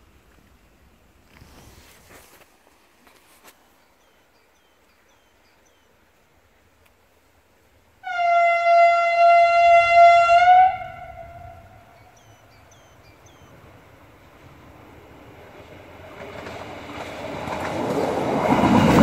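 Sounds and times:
low train rumble: 3.6s - 19.0s
train horn: 8.0s - 12.3s.

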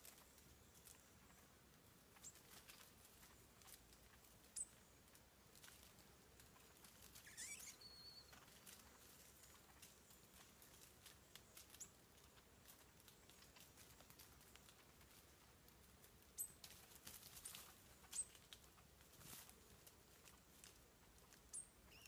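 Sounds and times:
ticks and rustles in dry leaves: 0.0s - 22.0s
short high bird calls: 7.2s - 8.4s, 21.5s - 22.0s.

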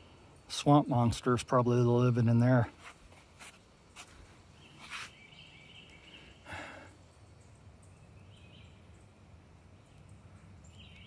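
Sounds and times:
footsteps crunching on dry leaves: 2.7s - 5.2s.

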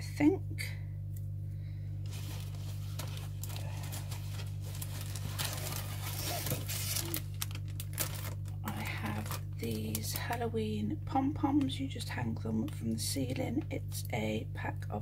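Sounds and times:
steady low hum: 0.0s - 15.0s
plastic packaging crinkling: 2.0s - 10.4s.

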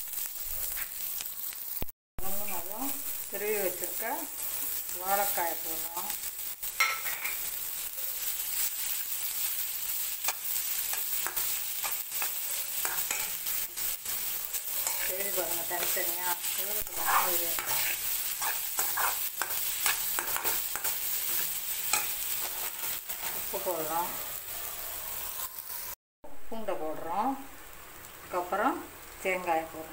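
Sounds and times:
vegetables sizzling in hot oil: 0.0s - 26.0s, 26.8s - 29.9s
metal spatula scraping and tapping pan: 6.8s - 7.4s, 10.2s - 14.2s, 14.8s - 16.0s, 17.0s - 23.5s.

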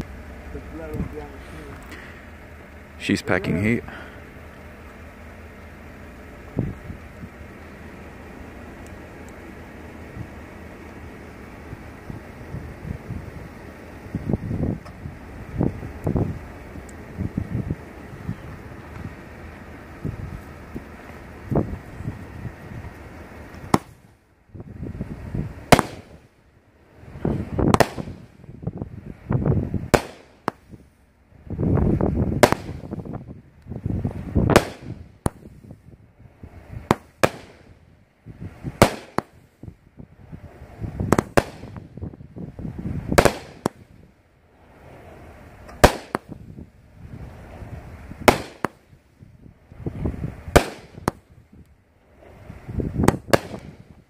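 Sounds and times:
sharp aerial firework reports: 0.0s - 5.5s
firework launch thumps: 23.6s - 24.1s, 25.7s - 26.2s, 27.6s - 28.3s, 32.4s - 33.2s, 34.4s - 35.8s, 36.8s - 37.7s, 41.0s - 42.1s, 43.1s - 44.0s, 48.2s - 48.9s, 50.4s - 51.3s, 52.2s - 53.9s.

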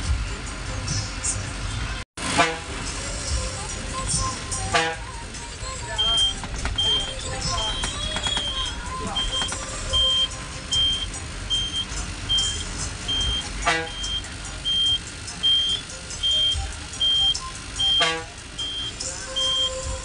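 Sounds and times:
bus engine running: 0.0s - 20.0s
street traffic: 0.0s - 20.0s
horn toots: 2.2s - 2.9s, 4.5s - 5.2s, 9.9s - 19.7s
bus buzzer beeping: 4.6s - 20.0s.

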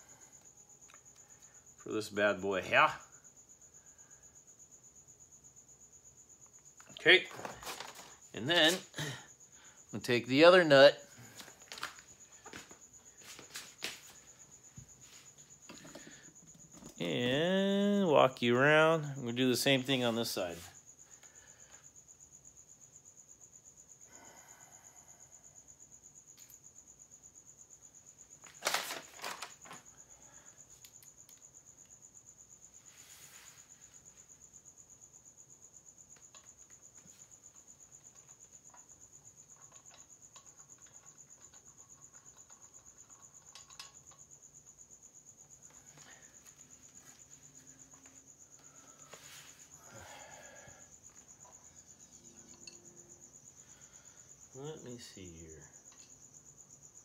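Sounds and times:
cricket chirping: 0.0s - 57.0s
small tools clicking and knocking: 36.1s - 44.7s, 52.4s - 53.0s, 55.8s - 56.2s.

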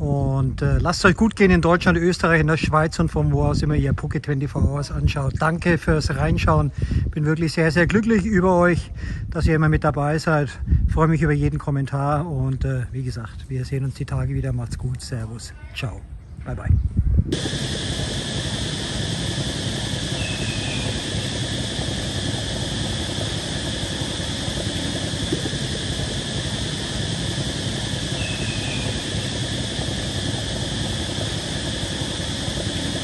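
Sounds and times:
steady droning noise: 17.2s - 33.0s
faint high chirps: 19.8s - 21.7s, 28.0s - 29.6s.

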